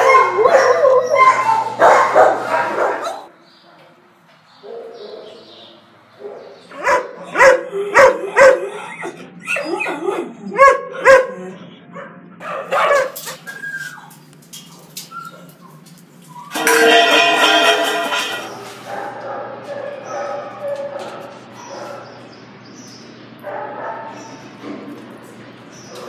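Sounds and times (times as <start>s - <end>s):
dogs barking: 0.0s - 4.0s, 4.6s - 22.6s, 23.2s - 26.0s.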